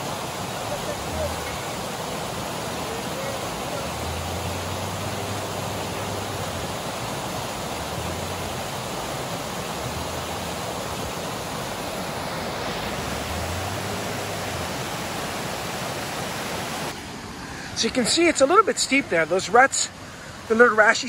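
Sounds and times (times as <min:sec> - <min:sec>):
creek rushing over rocks: 0:00.0 - 0:21.0
faint low engine hum: 0:00.1 - 0:16.1.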